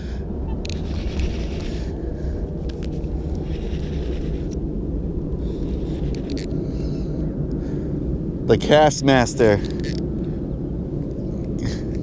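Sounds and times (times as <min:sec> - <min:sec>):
low outdoor rumble: 0:00.0 - 0:12.0.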